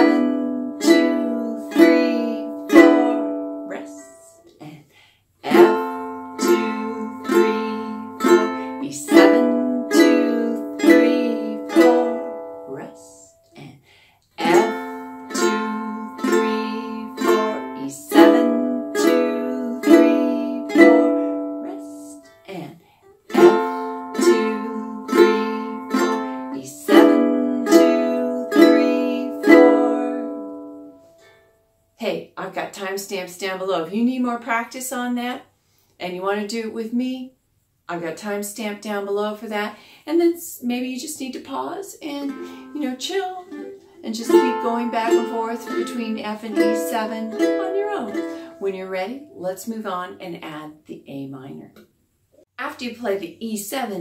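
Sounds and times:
ukulele down strums: 0.0s - 4.2s, 5.5s - 12.8s, 14.4s - 22.2s, 23.3s - 30.9s, 42.3s - 49.4s.

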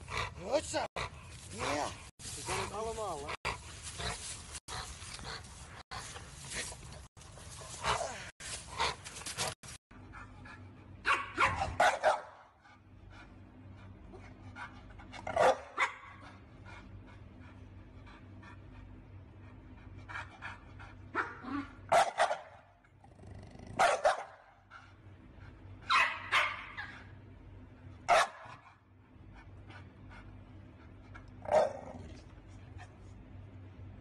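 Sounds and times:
dog barking: 11.0s - 12.5s, 15.3s - 16.2s, 21.1s - 22.7s, 23.8s - 24.6s, 25.9s - 26.9s, 28.1s - 28.6s, 31.4s - 31.8s.

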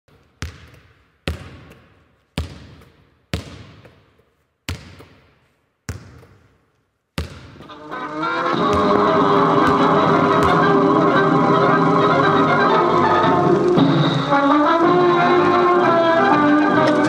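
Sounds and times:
basketball bouncing on hard floor: 0.4s - 4.0s, 4.7s - 5.3s, 5.9s - 6.5s, 7.2s - 7.7s
music: 7.6s - 17.0s.

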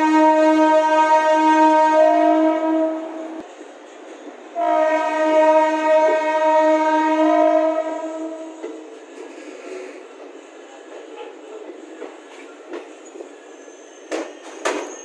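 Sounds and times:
train horn blasts: 0.0s - 3.4s, 4.6s - 9.0s.

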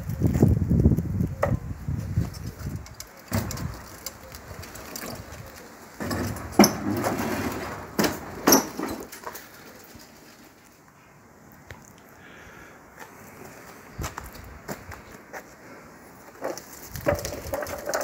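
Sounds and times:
lawn mower rattling on concrete: 2.1s - 10.5s, 16.3s - 18.0s.

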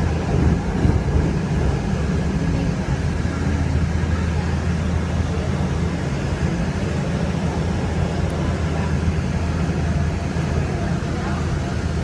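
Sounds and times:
light rail car rumbling along track: 0.0s - 12.0s.

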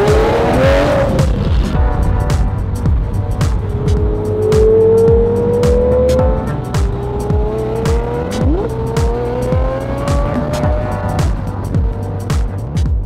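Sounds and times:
booming bass hits: 0.0s - 13.0s
hip-hop music: 0.0s - 13.0s
rising held tone: 3.7s - 11.0s.

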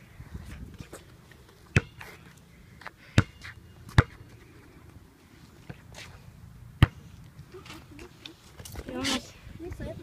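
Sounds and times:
basketball bouncing on concrete: 1.7s - 2.1s, 3.1s - 4.3s, 6.8s - 7.0s.

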